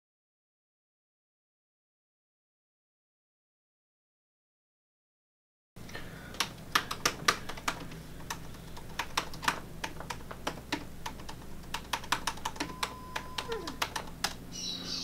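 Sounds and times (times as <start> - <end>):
low room hum: 5.8 - 15.0
laptop keyboard typing: 6.2 - 14.4.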